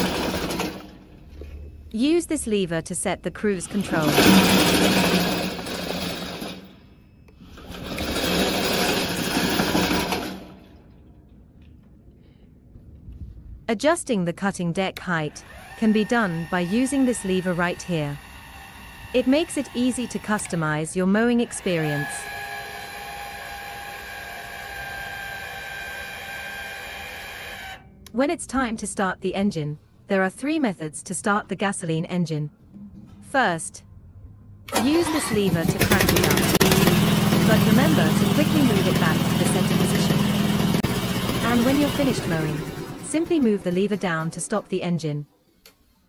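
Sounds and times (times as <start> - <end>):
electric drive motors whirring: 15.4 - 27.8.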